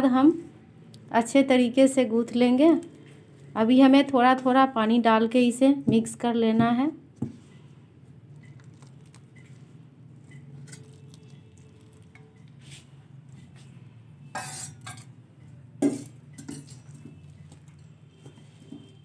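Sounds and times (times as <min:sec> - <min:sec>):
spoon clinking against bowl: 0:14.4 - 0:15.2.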